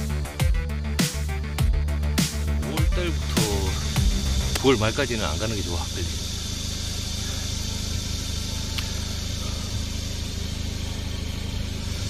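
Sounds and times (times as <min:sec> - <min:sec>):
car engine idling: 0:00.0 - 0:12.0
faint click: 0:08.7 - 0:08.9.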